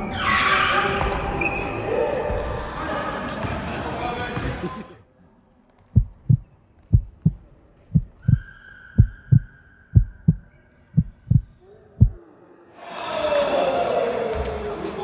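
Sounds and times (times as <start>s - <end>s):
heartbeat thumps: 6.0s - 8.4s, 9.0s - 12.2s.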